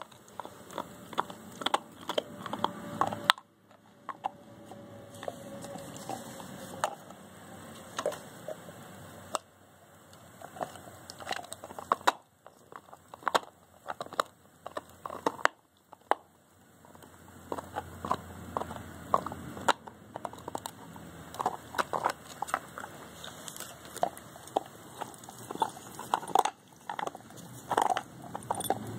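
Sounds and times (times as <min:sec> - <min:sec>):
dog gnawing a bone: 0:00.0 - 0:09.5, 0:10.1 - 0:28.9.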